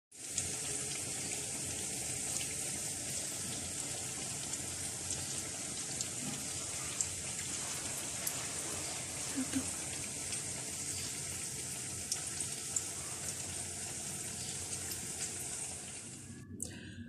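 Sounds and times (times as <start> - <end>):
steady hiss: 2.8 - 16.4.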